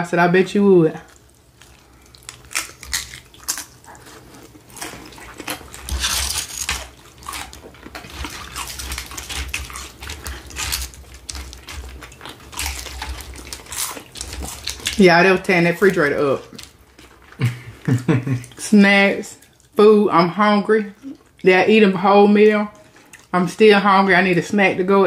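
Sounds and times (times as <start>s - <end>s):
chewing crunchy chips: 1.1s - 15.1s, 15.8s - 18.6s, 22.8s - 23.4s.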